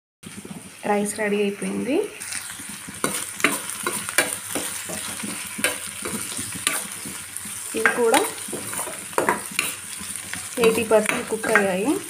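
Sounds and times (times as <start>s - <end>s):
vegetables sizzling in oil: 0.2s - 12.0s
spatula scraping a pan: 2.3s - 12.0s.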